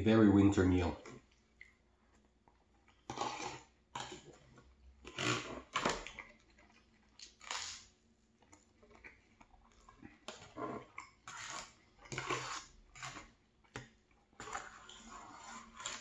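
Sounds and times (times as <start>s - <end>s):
chewing crunchy toast: 1.0s - 16.0s
fork scraping foil tray: 10.7s - 13.3s, 14.4s - 16.0s.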